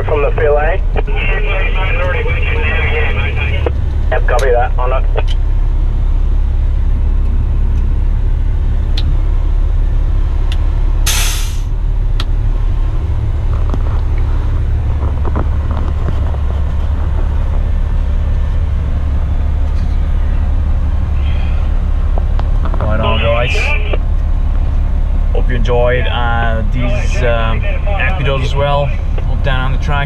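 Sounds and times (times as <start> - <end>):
diesel truck engine idling: 0.0 - 30.0
air brake hiss: 11.1 - 11.7.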